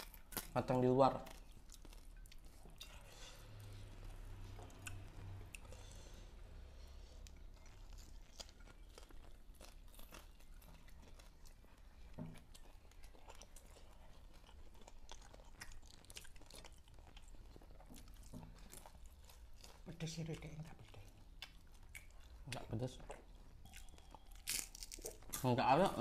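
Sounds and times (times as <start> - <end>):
person chewing food: 0.0 - 0.6, 1.2 - 25.5.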